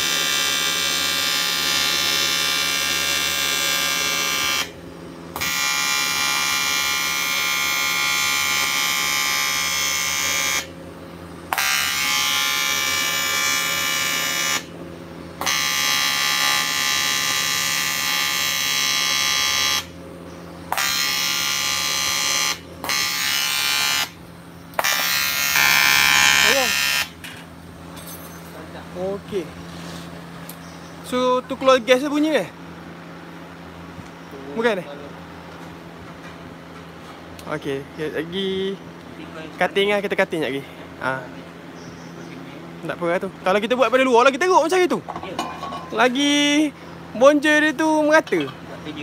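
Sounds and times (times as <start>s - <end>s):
welding arc buzzing: 0.0s - 28.0s.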